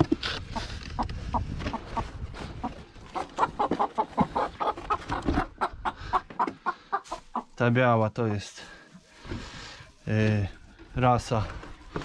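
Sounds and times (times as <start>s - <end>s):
hens clucking: 0.0s - 12.0s.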